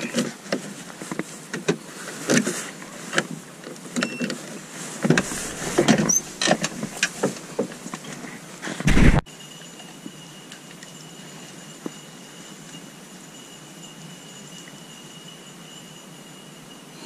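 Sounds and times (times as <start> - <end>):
footsteps crunching through dry brush: 5.1 - 7.0
heavy bump: 8.8 - 9.2.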